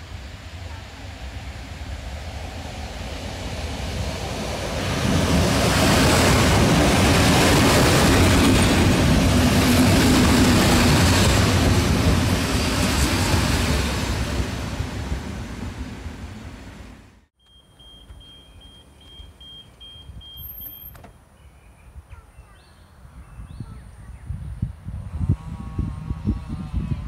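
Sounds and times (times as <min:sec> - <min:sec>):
electric train passing: 0:00.0 - 0:17.3, 0:25.0 - 0:27.0.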